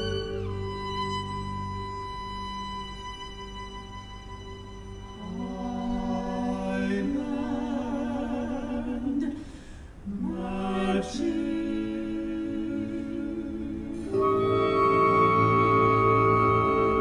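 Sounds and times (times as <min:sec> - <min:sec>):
person singing operatically: 0:05.2 - 0:09.4, 0:10.1 - 0:17.0.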